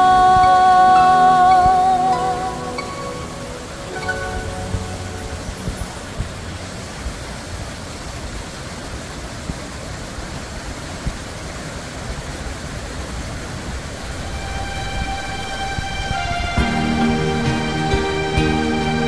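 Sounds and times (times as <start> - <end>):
music: 0.0 - 6.6, 13.5 - 19.0
mountain stream rushing over rocks: 0.0 - 19.0.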